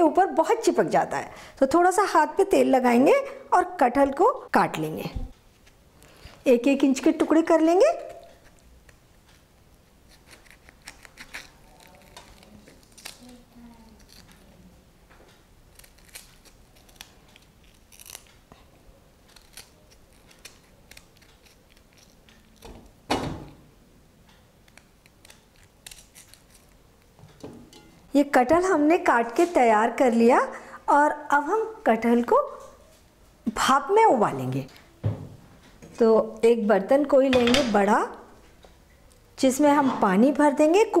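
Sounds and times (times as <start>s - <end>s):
loud knock: 35.0s - 35.4s.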